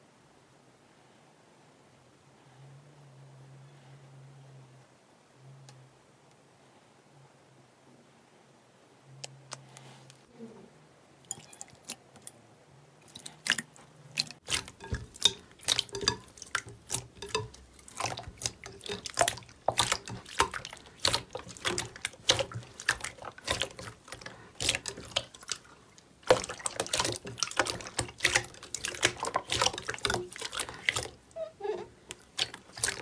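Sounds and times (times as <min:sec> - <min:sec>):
slime squelching and clicking: 0:13.0 - 0:31.4, 0:32.0 - 0:33.0.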